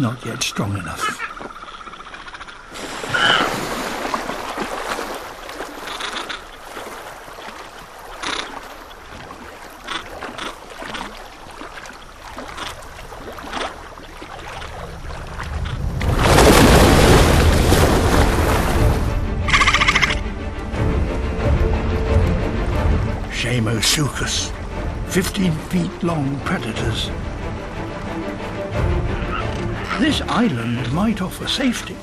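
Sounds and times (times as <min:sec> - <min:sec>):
water splashing: 0:01.1 - 0:32.0
loud heavy splash: 0:02.7 - 0:05.8, 0:15.2 - 0:19.3.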